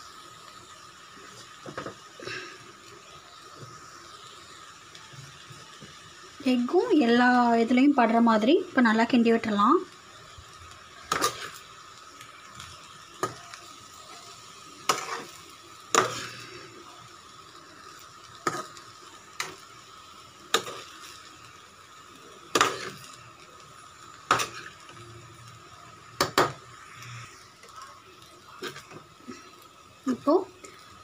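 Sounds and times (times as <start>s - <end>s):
rice sizzling: 0.0s - 31.0s
spoon scraping frying pan: 11.0s - 11.6s, 14.8s - 16.5s, 22.5s - 23.1s, 28.6s - 29.4s.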